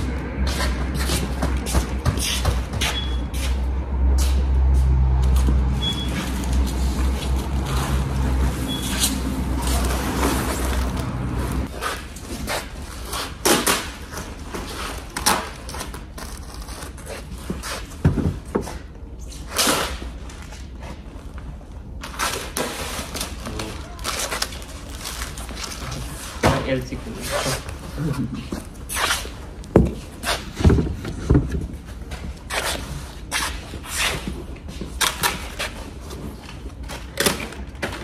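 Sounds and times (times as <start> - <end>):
foil insulation boards crinkling: 22.1 - 27.8.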